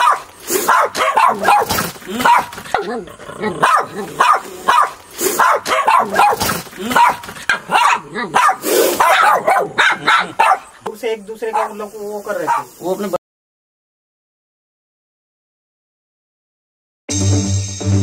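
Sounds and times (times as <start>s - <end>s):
dog barking: 0.0s - 3.0s, 3.6s - 10.8s, 11.4s - 12.8s.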